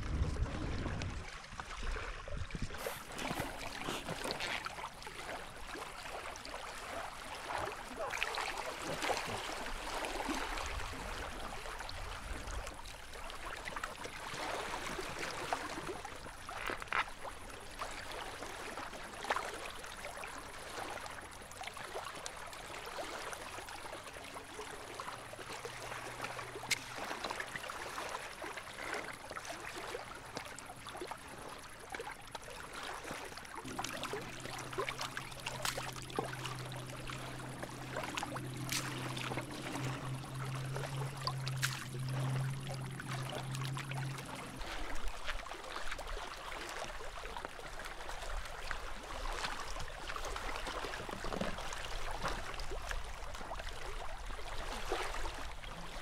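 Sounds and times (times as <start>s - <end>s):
small waves lapping on rocks: 0.0s - 56.0s
steady low hum: 32.6s - 45.8s.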